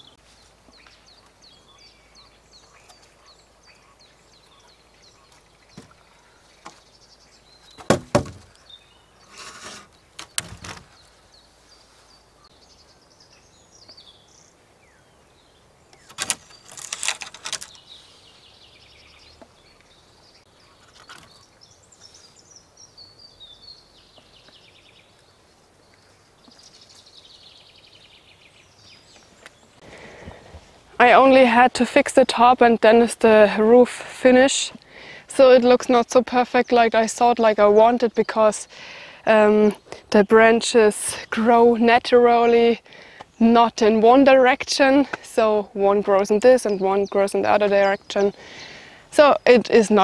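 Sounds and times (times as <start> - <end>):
birds chirping faintly: 0.0 - 50.0
branches knocking and scraping: 7.7 - 11.2, 15.9 - 17.9, 20.8 - 21.5.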